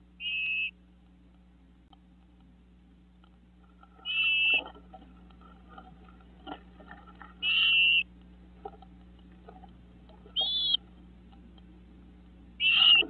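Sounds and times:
bird whistled calls: 0.2 - 0.8, 4.0 - 4.6, 7.4 - 8.1, 10.3 - 10.8, 12.6 - 13.0.

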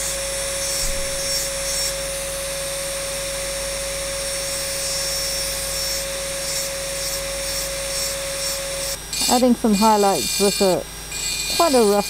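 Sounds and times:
engraving tool motor whine: 0.0 - 12.0
grinding hiss on glass: 4.4 - 12.0.

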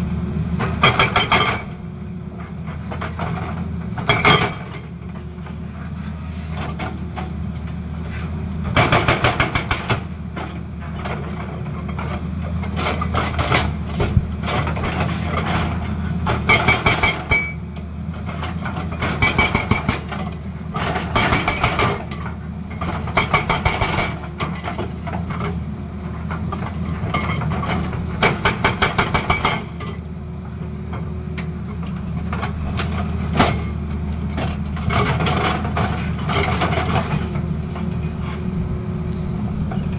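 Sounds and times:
excavator diesel engine drone: 0.0 - 39.9
hydraulic rock breaker hammering: 0.6 - 1.8, 8.6 - 11.3, 12.1 - 17.8, 18.5 - 25.6, 26.4 - 30.0.

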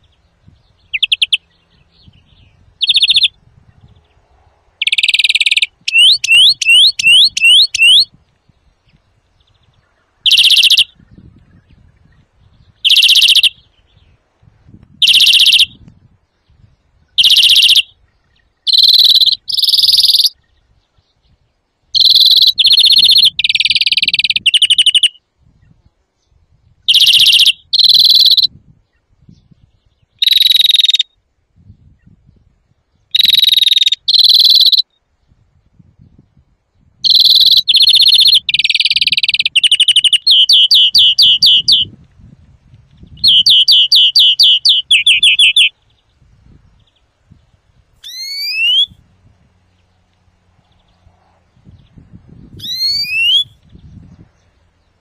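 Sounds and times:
finch singing: 0.0 - 4.1, 4.8 - 8.2, 8.9 - 14.2, 15.0 - 15.8, 16.5 - 21.4, 22.0 - 25.2, 26.9 - 31.0, 33.1 - 34.9, 37.0 - 42.0, 42.9 - 47.0, 48.0 - 49.0, 51.6 - 55.0.

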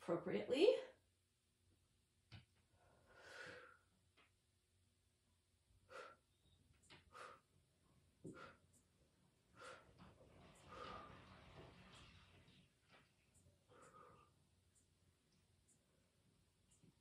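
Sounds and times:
woman breathing: 2.6 - 4.1, 5.8 - 11.7, 13.6 - 14.6.

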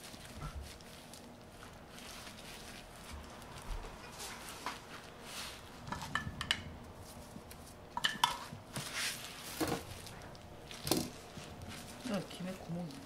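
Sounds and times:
kitchenware clinking and knocking: 8.0 - 8.5.

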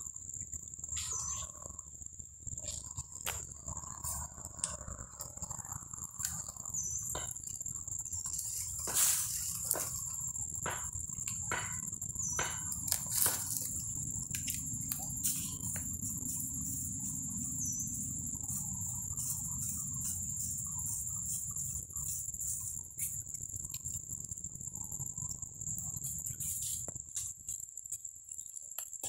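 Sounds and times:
high-pitched insect trill: 0.0 - 29.0
dry leaves crackling: 8.2 - 10.3, 12.2 - 17.0.

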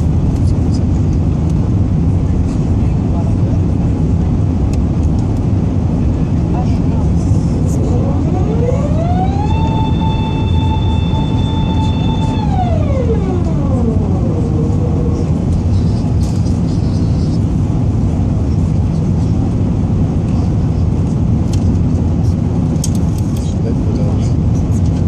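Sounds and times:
aircraft cabin engine rumble: 0.0 - 25.0
hydraulic whine: 7.9 - 15.3.

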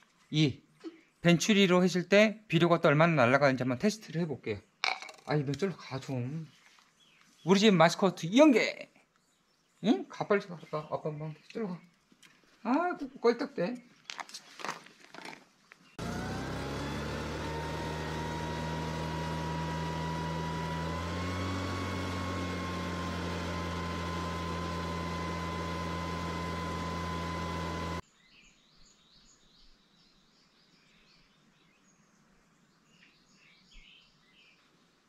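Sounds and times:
faint bird chirps: 0.1 - 1.4, 28.1 - 34.7
two-stroke engine with blower: 16.0 - 28.0.

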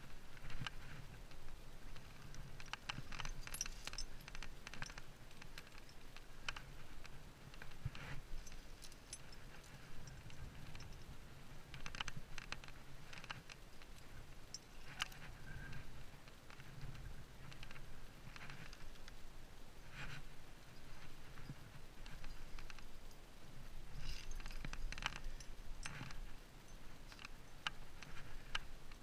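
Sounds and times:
karabiners clicking and clinking: 2.0 - 11.1, 24.0 - 28.6.

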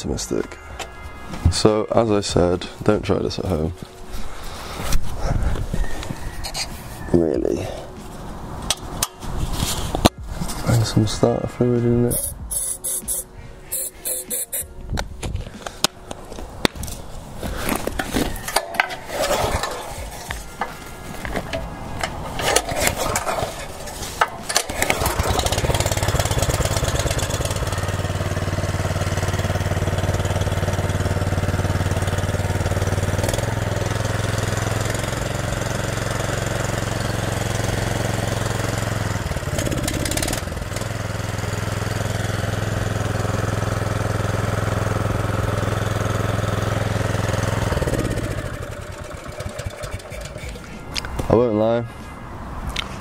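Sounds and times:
engine running: 17.6 - 51.2.

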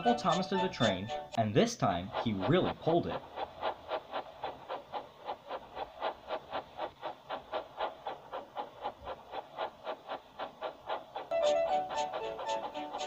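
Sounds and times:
steam locomotive chuffing: 0.0 - 13.0.

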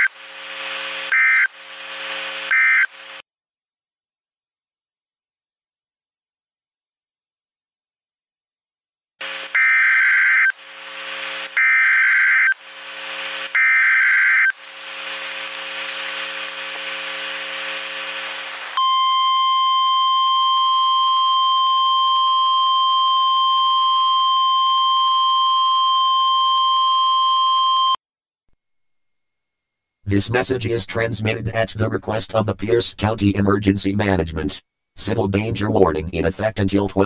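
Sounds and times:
shrill digital data tones: 13.5 - 14.6
single-tone attention signal: 18.8 - 23.3.

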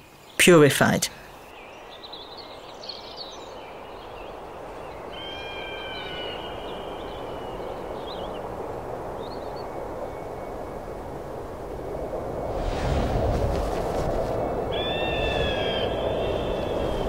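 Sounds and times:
birds chirping: 0.0 - 10.6, 13.5 - 17.0
steady rushing noise: 6.4 - 17.0.

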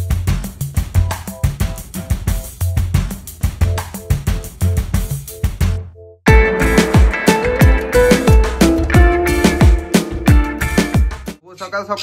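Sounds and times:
held synth notes: 6.3 - 11.1.

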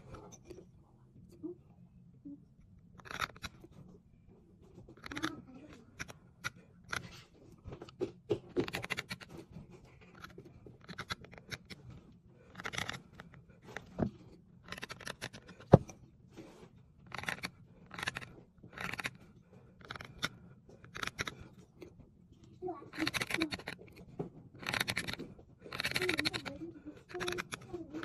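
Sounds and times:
knife scratching stone: 3.0 - 3.7, 8.6 - 15.9, 17.1 - 21.6, 22.9 - 28.0.

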